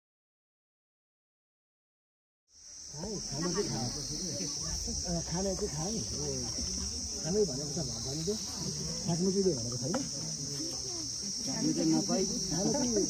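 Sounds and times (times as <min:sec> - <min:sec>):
insects chirring: 0:02.5 - 0:13.0
people talking: 0:02.9 - 0:13.0.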